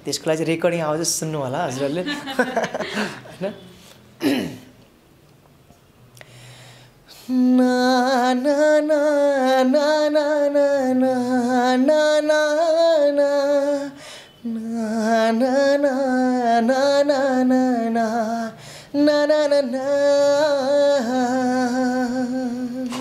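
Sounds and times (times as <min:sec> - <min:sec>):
man singing unaccompanied: 0:07.3 - 0:23.0.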